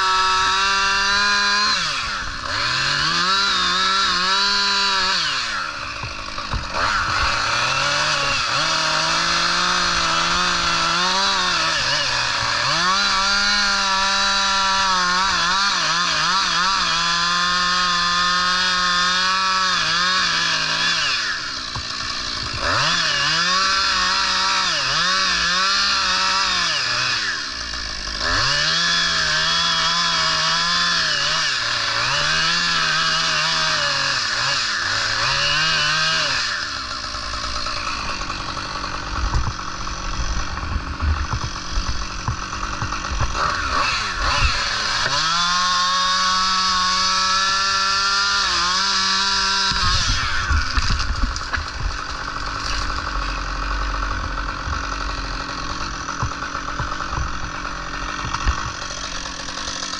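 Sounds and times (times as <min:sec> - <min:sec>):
chainsaw cutting wood: 0:00.0 - 0:59.9.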